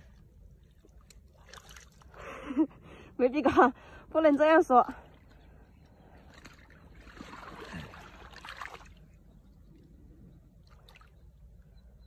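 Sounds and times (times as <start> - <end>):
muddy water sloshing: 0.0 - 2.6, 3.6 - 9.3, 10.6 - 11.3.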